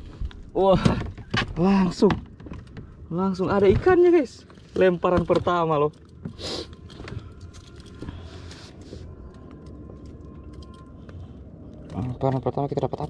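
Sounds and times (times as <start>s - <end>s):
metal fishing gear clicking: 6.8s - 8.6s, 9.2s - 13.0s.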